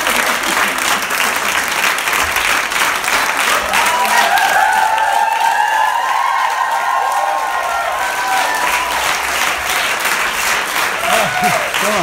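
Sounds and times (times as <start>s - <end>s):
crowd applauding: 0.0s - 12.0s
voices cheering whoop: 3.5s - 9.2s, 11.0s - 12.0s.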